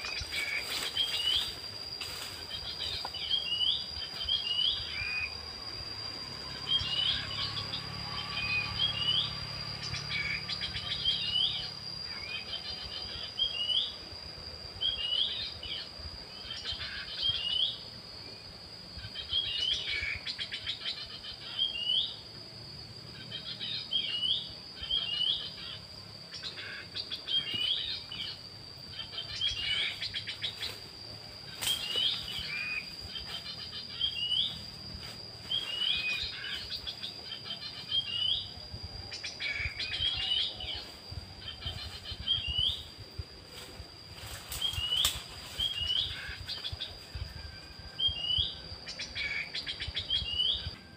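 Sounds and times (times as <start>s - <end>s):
bird whistling song: 0.0s - 5.5s, 6.4s - 14.0s, 19.0s - 22.2s, 31.6s - 34.6s, 35.4s - 40.8s, 41.4s - 43.0s, 44.5s - 50.9s
high insect drone: 0.0s - 50.9s.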